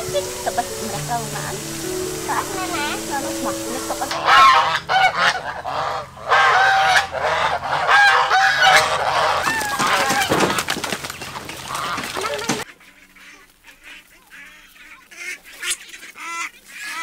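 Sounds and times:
geese honking: 0.0 - 17.0
wings flapping: 8.0 - 17.0.

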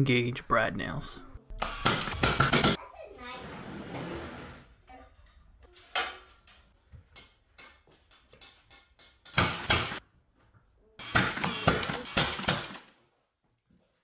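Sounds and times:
nail gun firing: 1.6 - 2.8, 9.3 - 10.0, 11.0 - 12.9.

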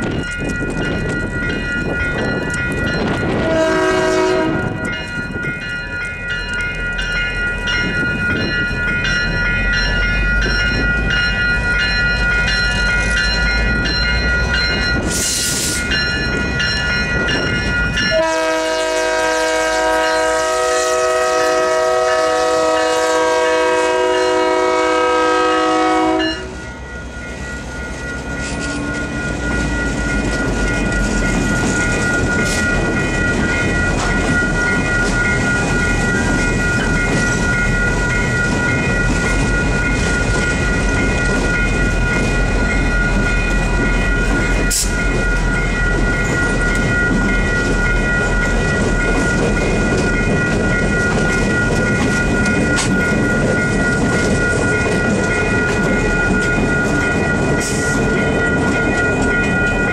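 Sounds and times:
crossing bell ringing: 0.0 - 59.9
locomotive air horn: 3.4 - 4.8, 18.1 - 26.6.

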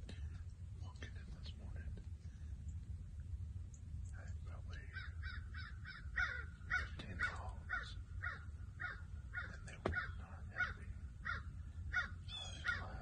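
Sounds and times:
crows cawing: 4.9 - 13.0.

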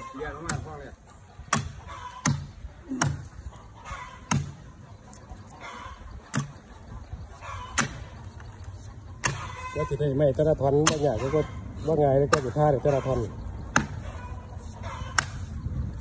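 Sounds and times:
hatchet chopping rotten wood: 0.4 - 0.8, 1.5 - 3.3, 4.2 - 4.6, 6.3 - 6.6, 7.7 - 8.1, 9.2 - 9.6, 10.8 - 11.2, 13.7 - 14.1.

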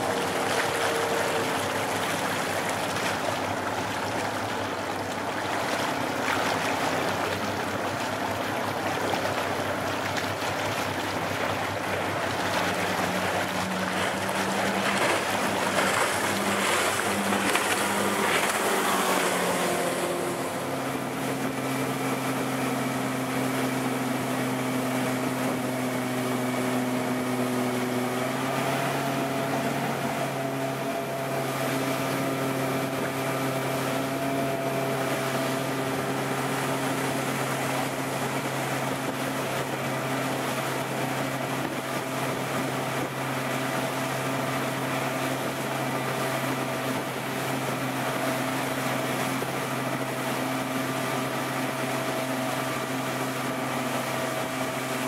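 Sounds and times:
motorboat engine hum: 0.0 - 55.0
rush of wind and spray: 9.6 - 27.2.

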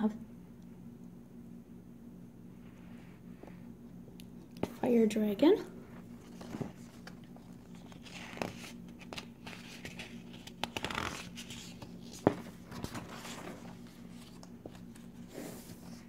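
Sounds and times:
faint low hum: 0.0 - 16.0
paper rustling: 6.0 - 16.0.

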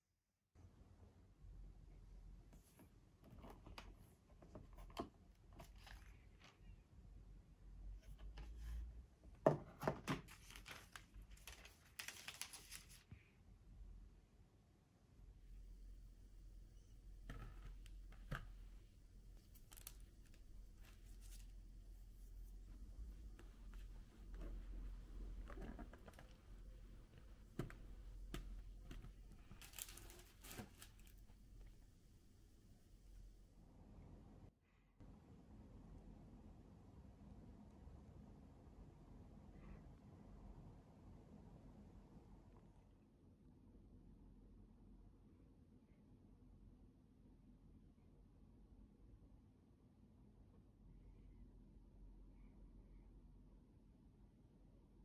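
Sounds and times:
rustling: 10.2 - 13.1, 16.8 - 33.4
faint clicks and taps: 22.5 - 31.8.

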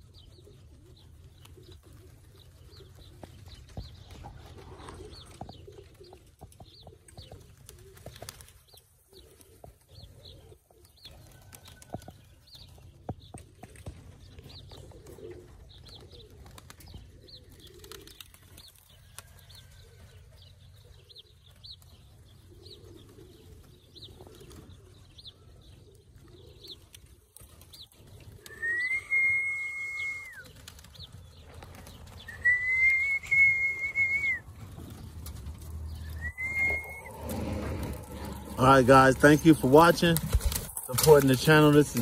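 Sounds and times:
pigeons cooing: 0.0 - 42.0
wings flapping: 0.3 - 20.1, 20.8 - 25.0, 25.9 - 42.0
long level whistles: 28.5 - 30.5, 32.2 - 34.4, 36.0 - 38.8.

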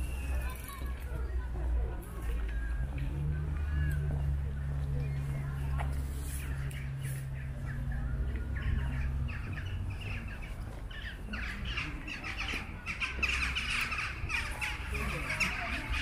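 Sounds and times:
flock of birds calling: 3.5 - 16.0.

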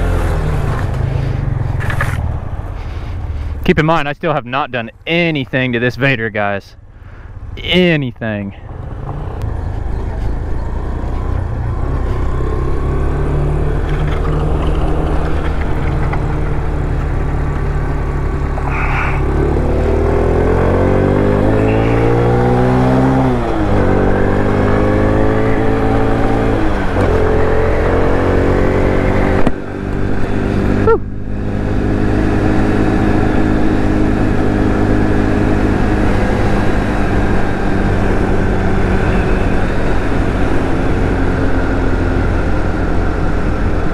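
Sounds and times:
motorcycle engine revving: 0.0 - 3.5, 8.6 - 43.9.

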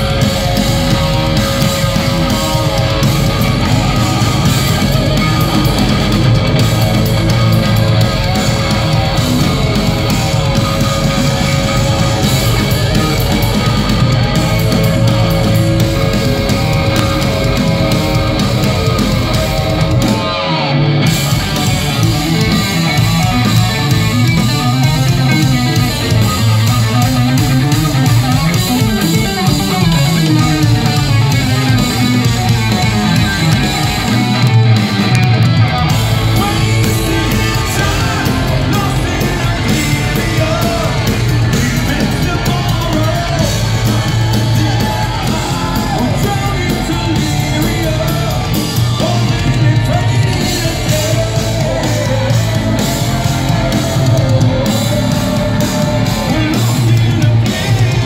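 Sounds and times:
heavy metal band playing: 0.0 - 58.0
man singing: 36.1 - 58.0.

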